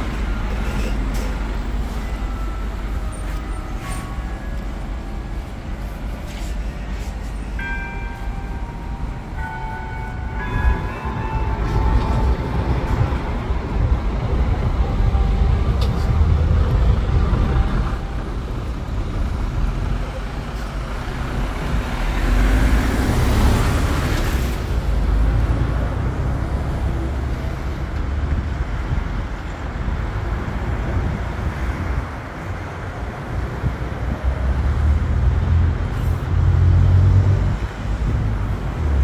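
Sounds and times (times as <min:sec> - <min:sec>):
road traffic passing: 0:00.0 - 0:39.0
steady low rumble: 0:04.4 - 0:21.8.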